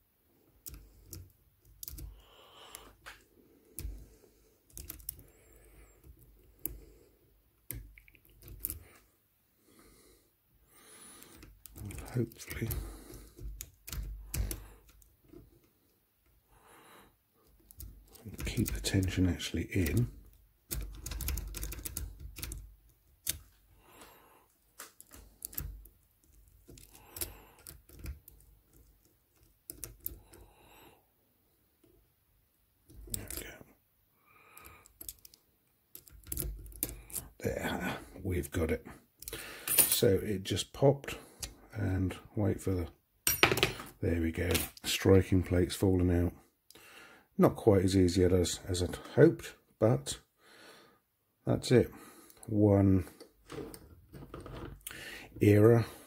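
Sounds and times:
lock-picking tools clicking: 0:00.6 - 0:02.8, 0:04.7 - 0:05.3, 0:07.6 - 0:08.8, 0:11.2 - 0:15.4, 0:17.4 - 0:23.5, 0:24.8 - 0:30.4, 0:34.6 - 0:37.3.

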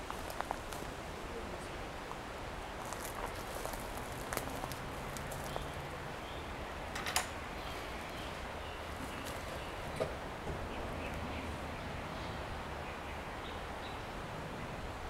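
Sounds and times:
outdoor background hiss: 0:00.0 - 0:15.0
light clicks and crackles: 0:02.9 - 0:05.6.

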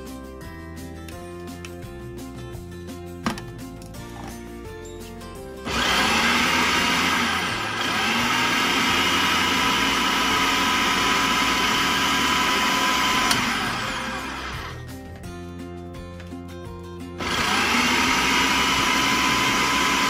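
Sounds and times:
food processor motor chopping: 0:05.7 - 0:14.8, 0:17.2 - 0:20.0.

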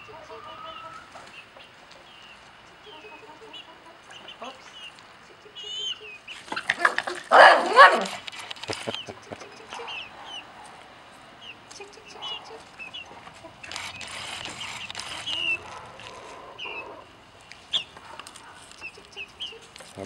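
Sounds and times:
chicks peeping and chirping: 0:00.0 - 0:20.0
rustling noise: 0:07.9 - 0:09.1, 0:12.6 - 0:16.4.

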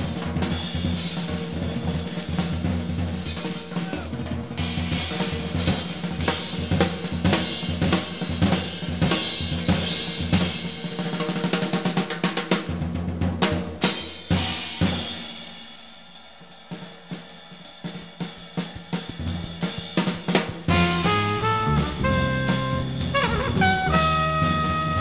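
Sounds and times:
jazz drum kit playing: 0:00.0 - 0:12.6, 0:19.2 - 0:25.0.

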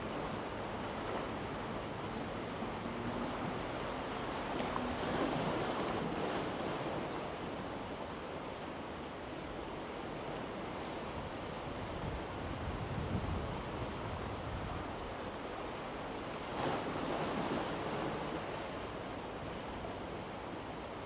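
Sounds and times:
surf washing against rocky shore: 0:00.0 - 0:07.8, 0:16.2 - 0:18.9.

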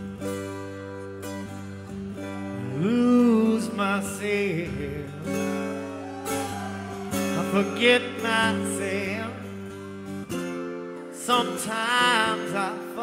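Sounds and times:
strummed acoustic guitar: 0:00.0 - 0:13.0
person singing: 0:02.6 - 0:09.7, 0:11.1 - 0:13.0.

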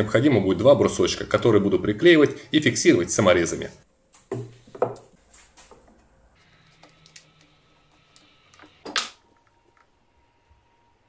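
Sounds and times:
wooden bars knocked on tabletop: 0:04.3 - 0:05.1.

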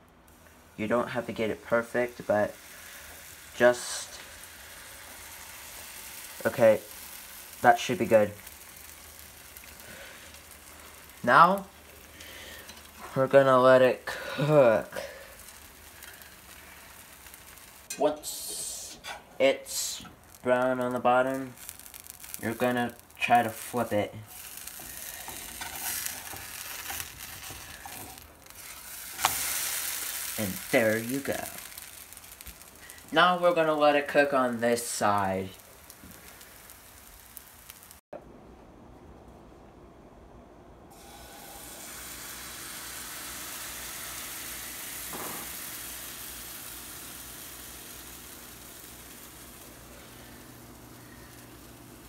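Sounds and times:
pancake sizzling in a frying pan: 0:00.3 - 0:38.0, 0:40.9 - 0:52.0
metal spatula scraping a pan: 0:24.4 - 0:30.3.

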